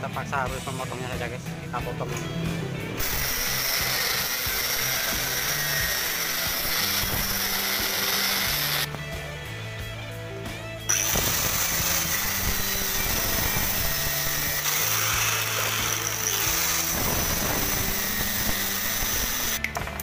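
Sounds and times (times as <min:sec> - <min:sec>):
angle grinder cutting steel: 0:03.0 - 0:08.9, 0:10.9 - 0:19.7.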